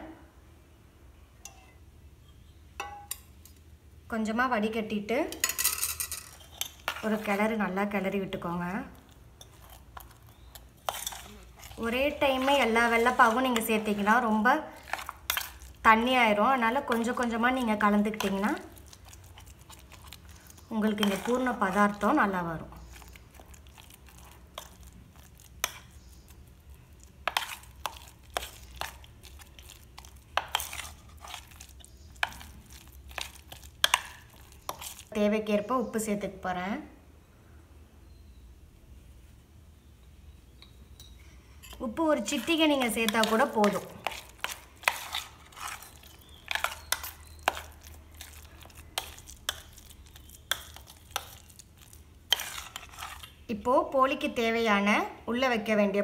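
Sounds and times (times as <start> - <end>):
spoon scraping steel bowl: 5.4 - 7.6, 9.0 - 26.4, 27.2 - 35.1, 41.0 - 53.4.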